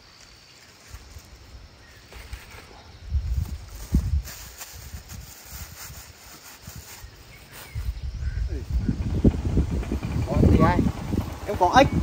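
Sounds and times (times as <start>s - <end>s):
wind buffeting microphone: 2.9s - 12.0s.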